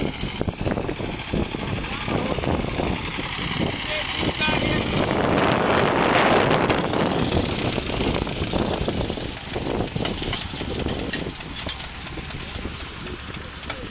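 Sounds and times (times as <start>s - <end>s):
tractor engine idling: 0.0s - 13.9s.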